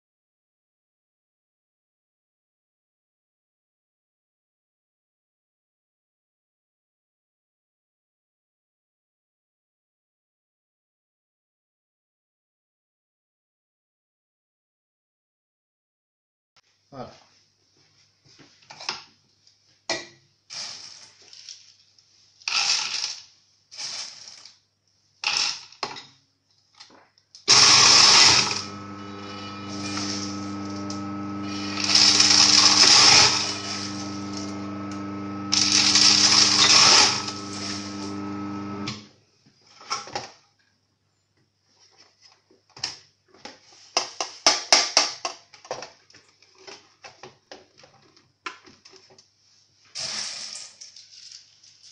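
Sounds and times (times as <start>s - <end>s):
beans crunching in grinder: 27.5s - 39.0s
electric grinder motor humming: 27.5s - 39.1s.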